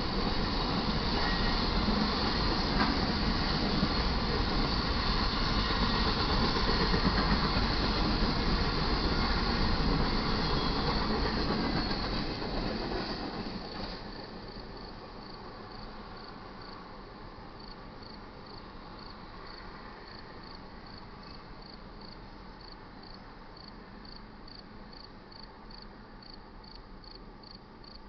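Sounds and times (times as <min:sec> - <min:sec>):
freight train rumble: 0:00.0 - 0:27.8
crickets chirping: 0:13.7 - 0:28.0.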